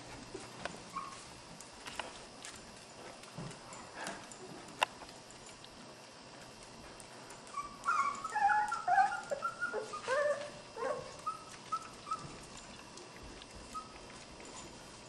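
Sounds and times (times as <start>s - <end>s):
puppy whimpering: 0.9s - 1.3s, 7.4s - 12.7s, 13.6s - 14.1s.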